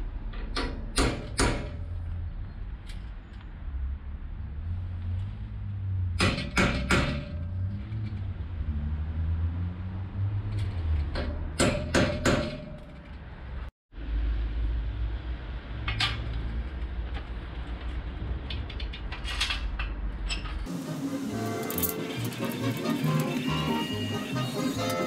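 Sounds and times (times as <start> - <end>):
metal clanking and knocking: 11.0 - 13.2.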